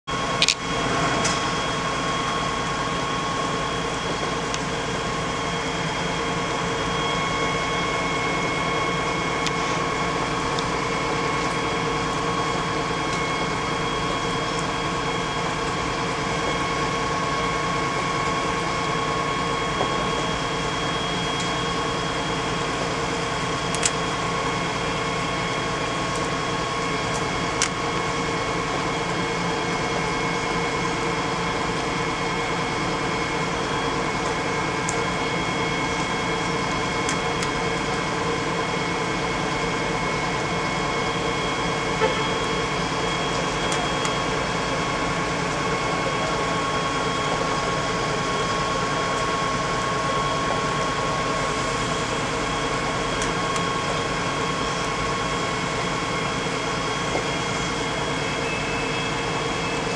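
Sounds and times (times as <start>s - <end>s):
fire engine pump humming: 0.0s - 59.9s.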